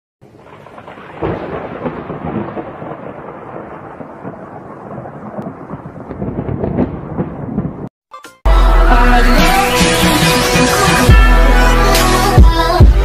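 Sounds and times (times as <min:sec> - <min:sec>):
heavy rain: 0:00.2 - 0:07.9
thunder rumbling: 0:00.2 - 0:07.9.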